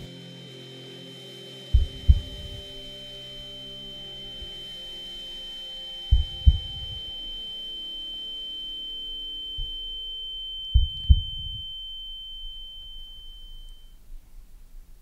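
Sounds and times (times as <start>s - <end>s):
high-pitched ringing tone: 0.0s - 14.2s
low hum: 0.0s - 15.0s
heartbeat thump: 1.7s - 2.6s, 6.1s - 7.0s, 10.8s - 11.6s.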